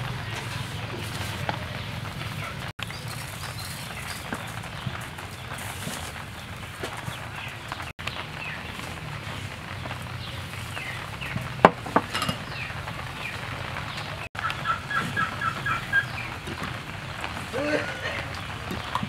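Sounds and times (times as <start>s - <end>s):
chickens clucking: 10.8s - 19.0s.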